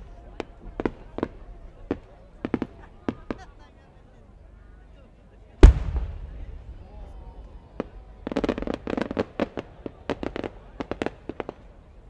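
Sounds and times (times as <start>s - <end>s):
fireworks popping: 5.6s - 11.8s.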